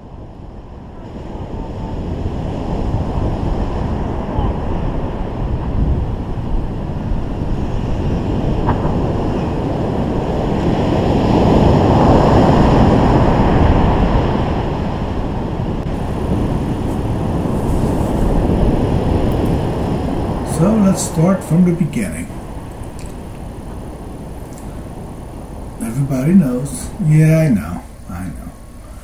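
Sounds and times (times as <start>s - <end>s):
ocean surf breaking: 0.0s - 29.0s
wind buffeting the microphone: 0.0s - 29.0s.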